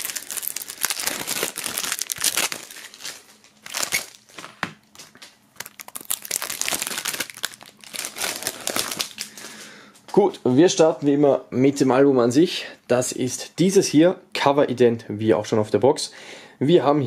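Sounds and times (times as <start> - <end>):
plastic film crinkling: 0.0 - 9.7.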